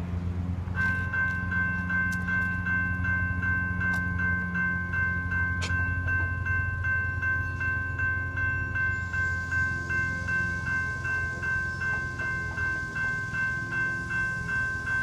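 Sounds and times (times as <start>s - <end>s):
electronic crossing bell ringing: 0.7s - 15.0s.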